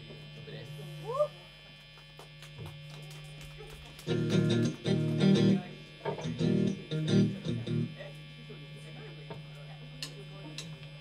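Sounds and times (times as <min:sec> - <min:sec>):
amplifier hum: 0:00.0 - 0:11.0
electric guitars strumming chords: 0:04.0 - 0:08.0.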